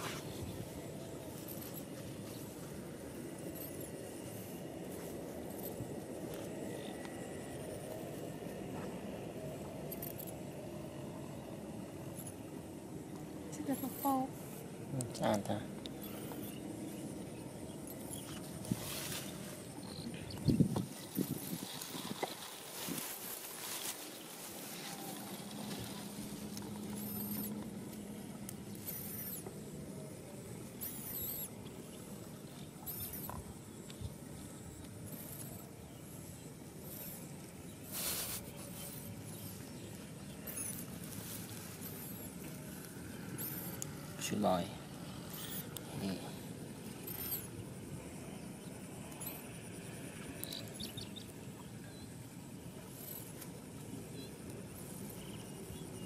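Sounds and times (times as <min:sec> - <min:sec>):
thin high hum: 0:00.0 - 0:56.0
high thin squeaking calls: 0:13.5 - 0:14.4, 0:15.9 - 0:17.2, 0:17.8 - 0:28.1, 0:28.7 - 0:29.5, 0:30.8 - 0:31.6, 0:32.7 - 0:33.5, 0:35.0 - 0:47.6, 0:49.1 - 0:49.6.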